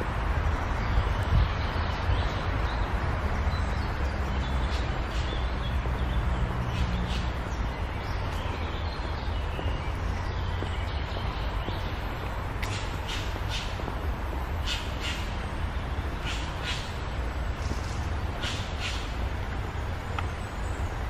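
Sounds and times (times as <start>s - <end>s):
small birds chirping: 0.4s - 21.0s
outdoor rumble: 3.0s - 20.8s.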